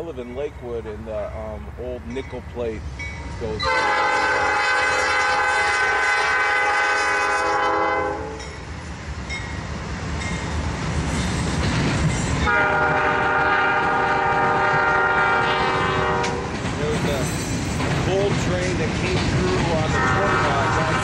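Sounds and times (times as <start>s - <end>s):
train rumbling past: 0.0s - 21.0s
locomotive air horn blasts: 3.6s - 8.5s, 12.5s - 16.5s, 19.9s - 21.0s.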